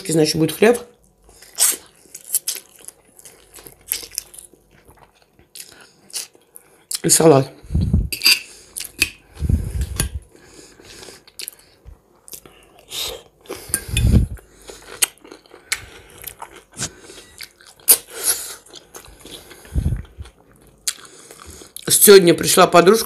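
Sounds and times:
crunchy chewing: 0:01.0 - 0:07.0, 0:12.2 - 0:21.9
dull low thumps: 0:07.7 - 0:08.1.

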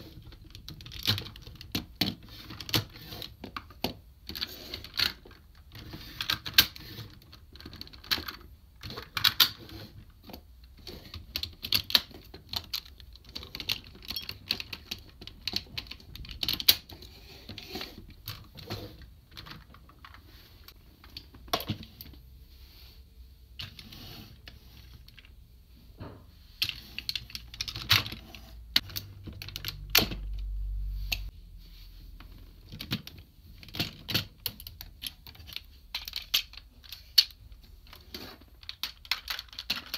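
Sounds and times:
plastic toy parts clicking: 0:00.2 - 0:09.6, 0:11.1 - 0:18.5, 0:26.6 - 0:30.4, 0:32.6 - 0:39.9.

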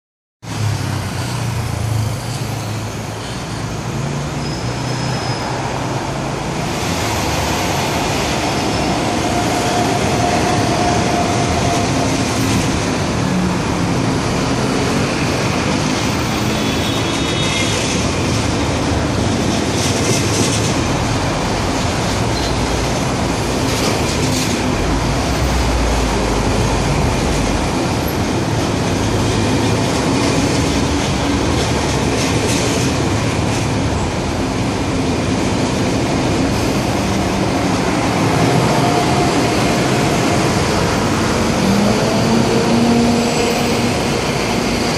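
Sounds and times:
train wheels on rails: 0:00.5 - 0:44.9.

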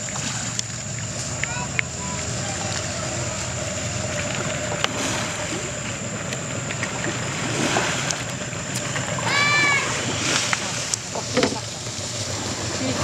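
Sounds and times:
boat engine hum: 0:00.0 - 0:13.0
water splashing: 0:00.0 - 0:13.0
elephant call: 0:01.5 - 0:05.7.

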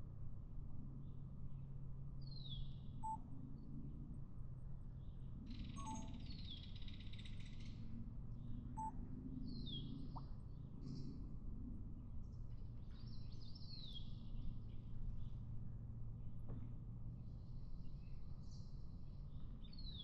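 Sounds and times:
songbird singing: 0:05.0 - 0:07.7, 0:08.4 - 0:11.1.

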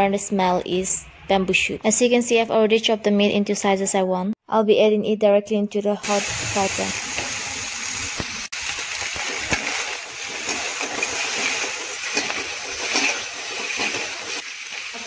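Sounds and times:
pork sizzling in a wok: 0:06.0 - 0:15.0
metal spatula scraping a pan: 0:09.1 - 0:15.0.

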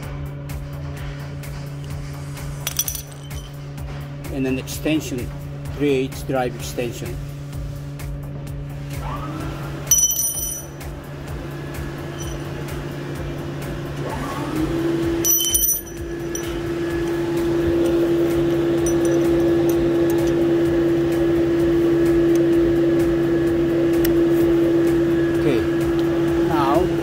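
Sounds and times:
motor humming: 0:07.2 - 0:27.0.

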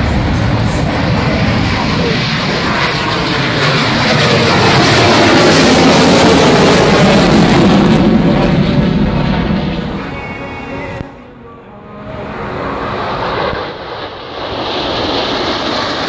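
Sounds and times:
jet engine roar: 0:00.0 - 0:16.0.

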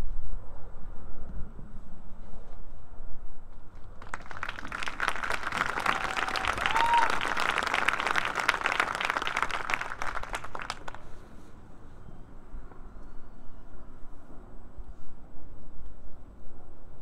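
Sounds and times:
crowd clapping: 0:03.8 - 0:11.2
person whooping: 0:05.6 - 0:07.7.

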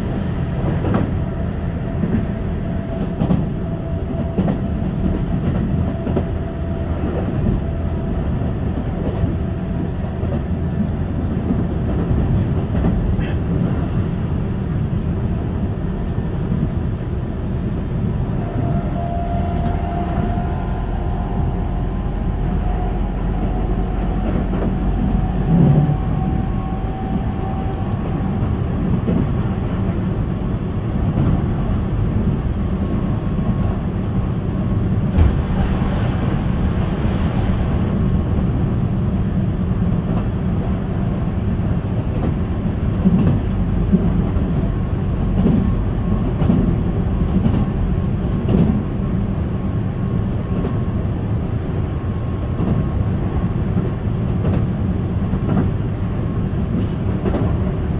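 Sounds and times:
passing train rushing hiss: 0:00.0 - 0:12.4
train wheels rumbling on rail: 0:00.0 - 0:57.9.

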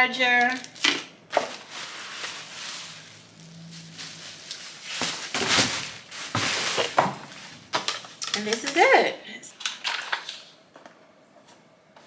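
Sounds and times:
plastic packaging rustling: 0:00.3 - 0:08.7.

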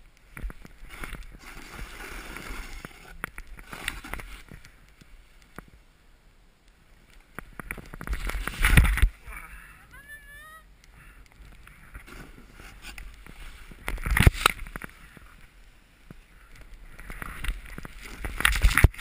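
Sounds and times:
snowboard scraping across snow: 0:00.8 - 0:05.3, 0:11.8 - 0:15.9.

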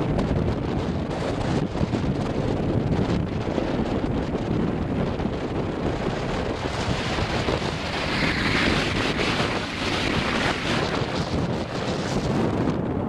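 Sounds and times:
wind buffeting microphone: 0:00.0 - 0:13.0
choppy water rushing: 0:05.0 - 0:12.8.

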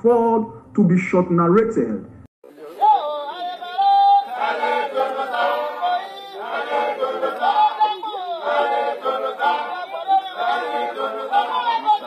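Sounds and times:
group singing without instruments: 0:02.4 - 0:12.0.

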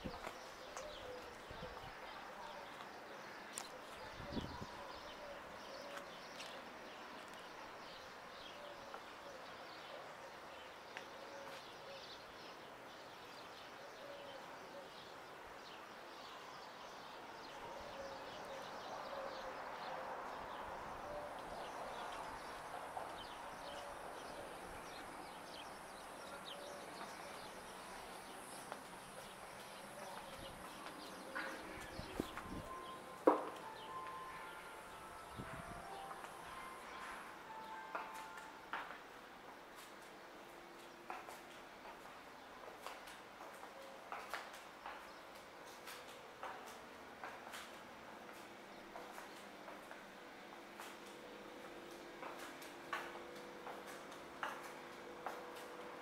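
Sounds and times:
birds chirping: 0:00.0 - 0:38.4
bird cooing: 0:00.6 - 0:02.6.

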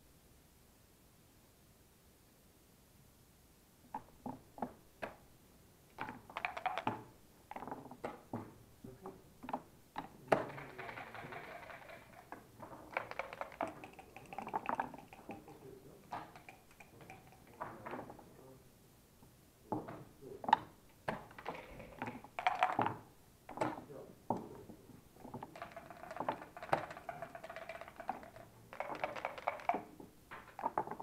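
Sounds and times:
checkers clicking on board: 0:06.0 - 0:07.6, 0:10.0 - 0:17.9, 0:20.5 - 0:23.8, 0:25.2 - 0:31.0
dice rattling in cup: 0:06.0 - 0:07.7, 0:10.0 - 0:17.8, 0:21.1 - 0:23.0, 0:25.2 - 0:31.0
dice tumbling onto board: 0:06.0 - 0:08.2, 0:09.5 - 0:18.2, 0:20.5 - 0:23.8, 0:25.2 - 0:31.0.

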